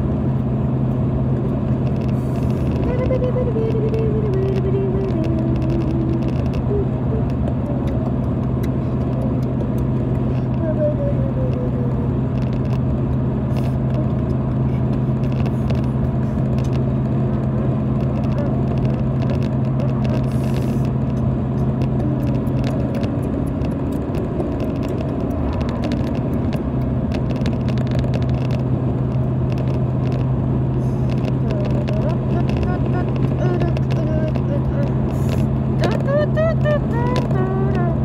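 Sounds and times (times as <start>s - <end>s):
car road noise: 0.0s - 38.0s
low engine drone: 0.0s - 38.0s.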